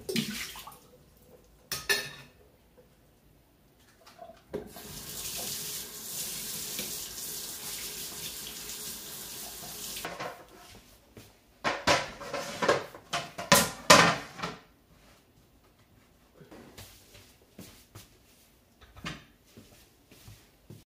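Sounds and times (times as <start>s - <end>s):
kitchenware clattering: 1.7s - 2.4s, 10.0s - 10.5s, 11.6s - 14.7s
tap water running into sink: 4.5s - 10.1s.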